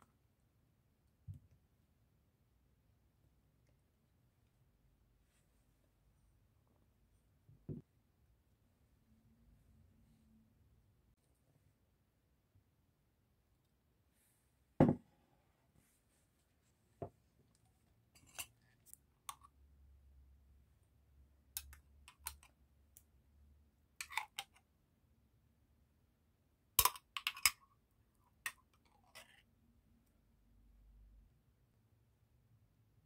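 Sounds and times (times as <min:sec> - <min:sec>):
glass bowl set down knock: 0:14.8 - 0:15.0.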